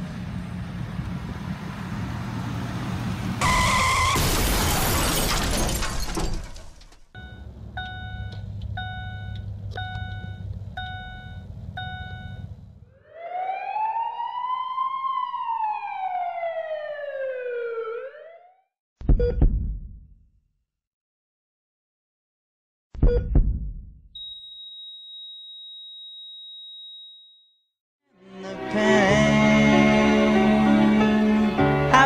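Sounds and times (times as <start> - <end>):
emergency siren wailing: 2.5 - 4.3, 12.9 - 18.7
car crash: 3.4 - 7.1.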